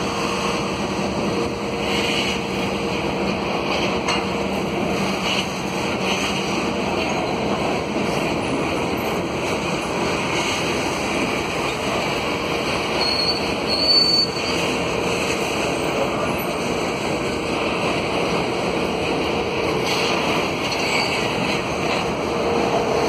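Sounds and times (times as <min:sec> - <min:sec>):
freight train rolling on rails: 0:00.0 - 0:23.0
wheel squeal: 0:12.9 - 0:14.8, 0:20.7 - 0:21.8.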